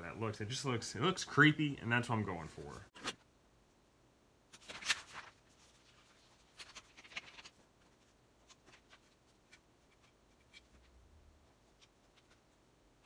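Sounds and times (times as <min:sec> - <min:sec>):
paper rustling: 0:04.5 - 0:11.0, 0:11.6 - 0:12.6.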